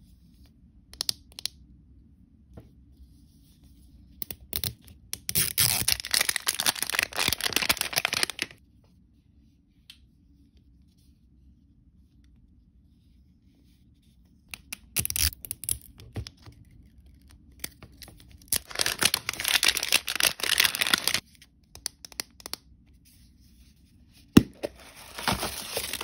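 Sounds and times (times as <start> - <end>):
wrapper crinkling and tearing: 4.6 - 8.6, 14.8 - 16.0, 17.6 - 21.3, 24.5 - 26.0.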